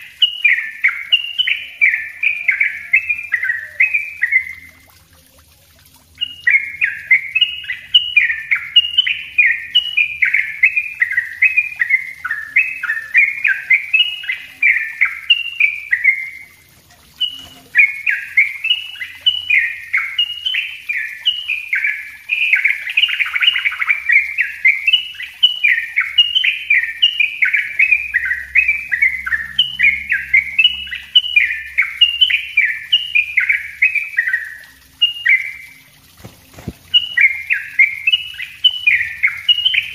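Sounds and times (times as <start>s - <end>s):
bird singing rapid chattering notes: 0.0s - 5.0s, 6.1s - 39.9s.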